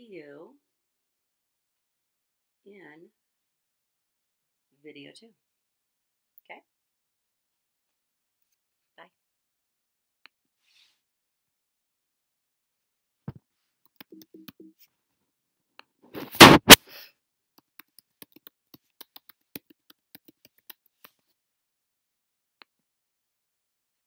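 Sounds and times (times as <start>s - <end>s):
faint clicks and taps: 17.6s - 21.2s.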